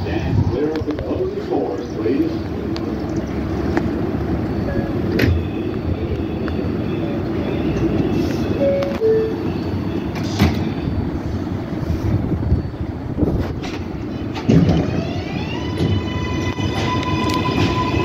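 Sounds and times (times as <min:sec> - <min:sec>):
subway train rumble and hum: 0:00.0 - 0:18.0
train doors shutting: 0:00.1 - 0:18.0.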